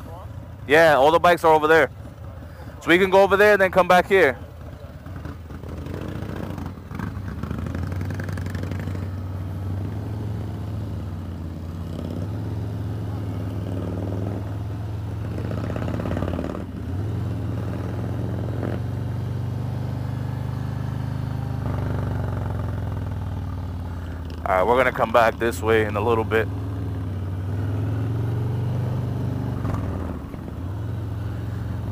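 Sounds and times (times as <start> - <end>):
motorcycle engine running: 0.0 - 31.9.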